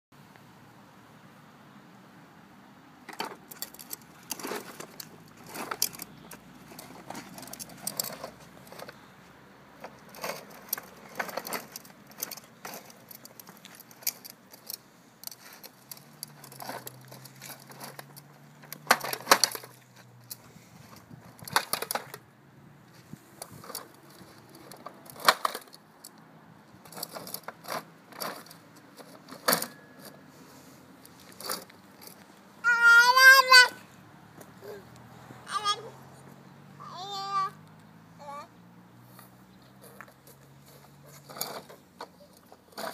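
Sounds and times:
plastic toy wheels clattering on asphalt: 3.0s - 9.1s, 9.8s - 22.3s, 22.9s - 30.3s, 31.0s - 33.8s, 39.1s - 42.9s.

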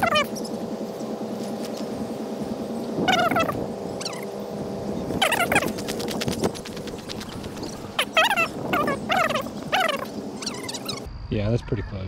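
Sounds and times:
animal high falling calls: 0.0s - 0.3s, 3.1s - 4.3s, 5.2s - 11.1s.

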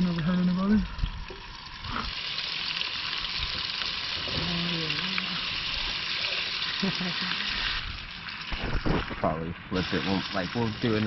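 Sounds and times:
fish sizzling in a pan: 1.9s - 9.2s.

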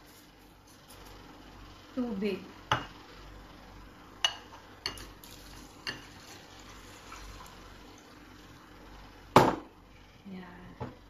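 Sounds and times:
water pouring into bowl: 5.2s - 8.7s.

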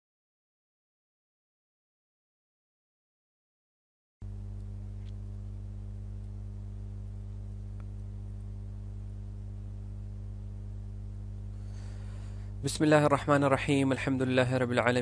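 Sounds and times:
low electrical hum: 4.2s - 15.0s.

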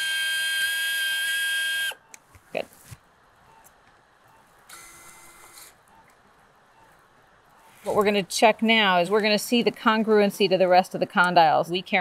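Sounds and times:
surgical drill high-pitched whine: 0.0s - 2.0s.

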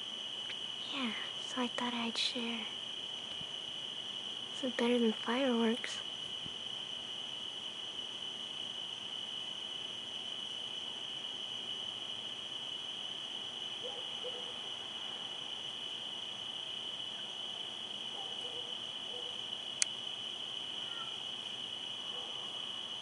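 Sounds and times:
crickets chirping: 0.0s - 23.0s
sharp click: 19.8s - 20.0s.

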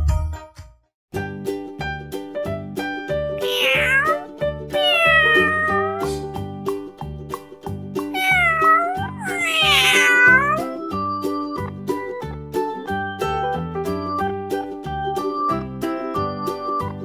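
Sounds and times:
cat meowing: 3.4s - 6.3s, 8.2s - 10.7s.

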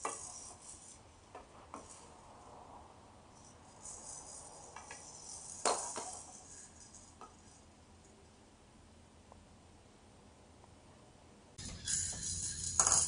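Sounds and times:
maracas rattling: 11.6s - 13.0s.

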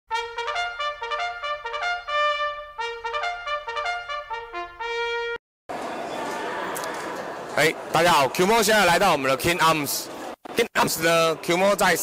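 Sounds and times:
trumpet playing quick melody: 0.1s - 5.4s.

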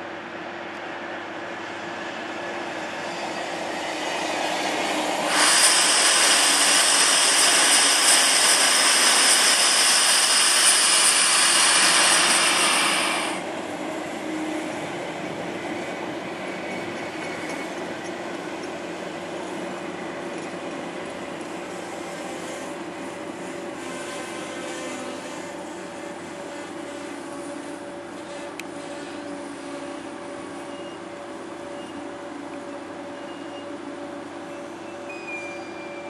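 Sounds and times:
train rolling noise: 0.0s - 36.0s
wheels squealing on rails: 2.2s - 13.5s, 15.6s - 18.8s, 21.7s - 36.0s.

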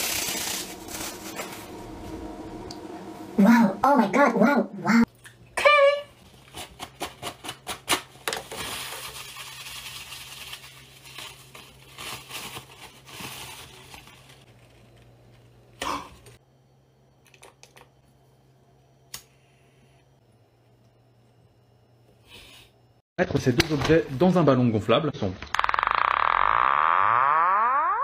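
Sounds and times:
paper towel rustling: 0.0s - 2.1s, 8.7s - 15.0s.

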